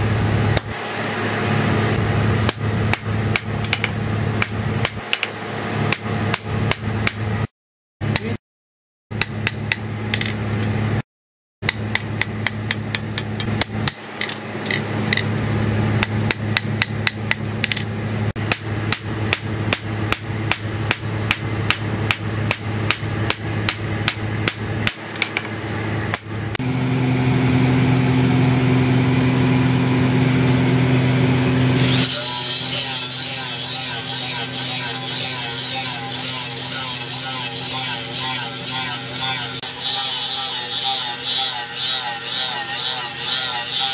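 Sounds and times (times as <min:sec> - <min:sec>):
steady low hum: 0:00.0 - 0:08.4, 0:11.6 - 0:43.9
hammer striking blade on anvil: 0:11.6 - 0:15.3.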